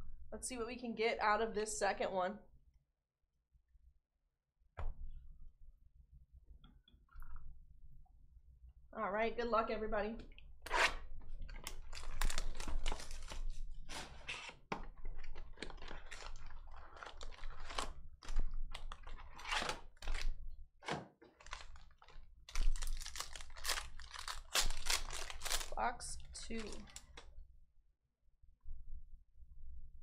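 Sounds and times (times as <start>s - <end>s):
foil pack tearing open: 11.6s - 14.6s, 15.2s - 20.3s, 21.3s - 27.2s
foil card packs crinkling: 11.7s - 20.3s, 21.3s - 27.2s.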